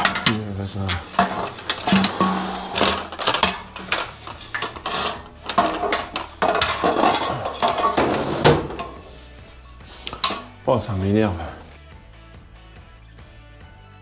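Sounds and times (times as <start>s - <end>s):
metal frame clattering: 0.0s - 9.3s, 10.1s - 10.6s.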